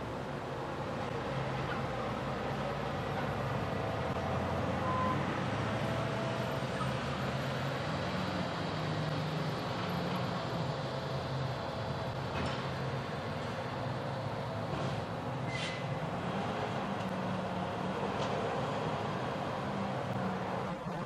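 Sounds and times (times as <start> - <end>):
garbage truck diesel engine: 0.0 - 21.0.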